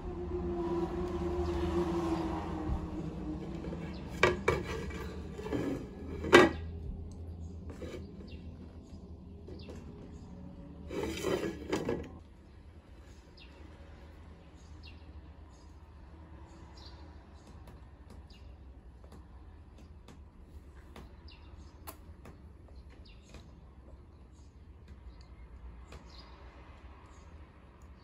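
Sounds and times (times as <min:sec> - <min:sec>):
plastic plate clattering on wood: 0:03.4 - 0:06.7, 0:10.9 - 0:12.2.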